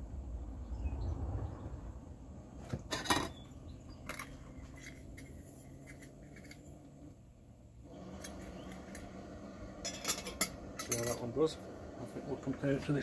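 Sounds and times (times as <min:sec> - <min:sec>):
metal pot clinking and rattling: 0:02.8 - 0:06.7, 0:09.8 - 0:11.4.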